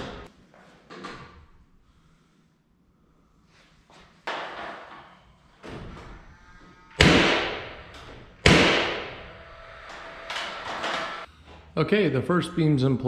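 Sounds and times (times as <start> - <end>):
hammer striking wooden beam: 7.0 - 9.2.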